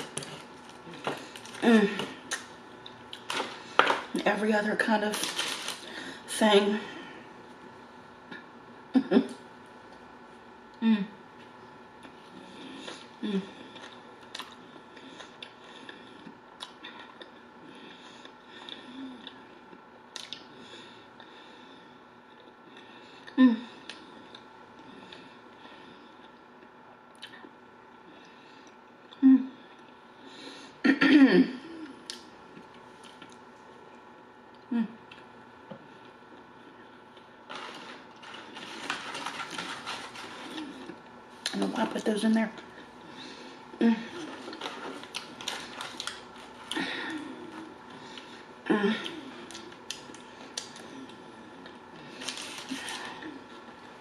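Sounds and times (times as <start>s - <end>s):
woman humming: 1.5s - 2.4s, 10.8s - 11.2s, 13.2s - 13.7s, 23.3s - 23.9s, 29.1s - 29.7s, 34.7s - 35.1s, 43.8s - 44.6s, 48.6s - 49.5s
woman chewing food: 11.4s - 21.3s, 31.8s - 41.6s, 42.6s - 54.0s
person chewing food: 12.0s - 17.5s, 44.1s - 53.8s.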